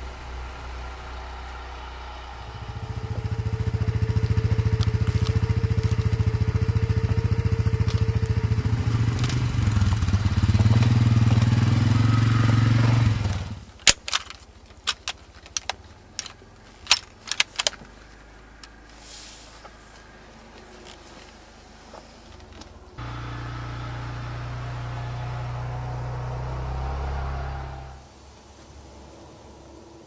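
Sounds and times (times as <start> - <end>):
atv engine running: 0.0 - 18.7, 22.3 - 28.0
rifle handling clicks and knocks: 13.7 - 18.8.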